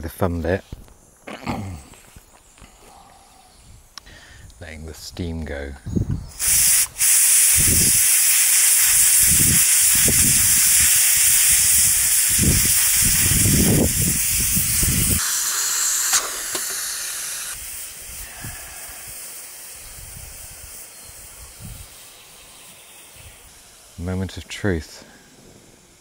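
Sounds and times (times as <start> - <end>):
pressure cooker hissing steam: 6.3 - 24.3.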